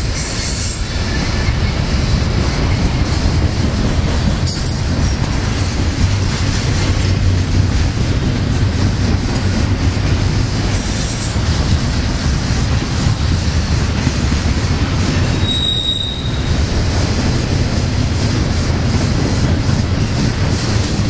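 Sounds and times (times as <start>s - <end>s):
train wheels rumbling on rail: 0.0s - 21.0s
high-pitched wheel squeals: 15.3s - 16.6s.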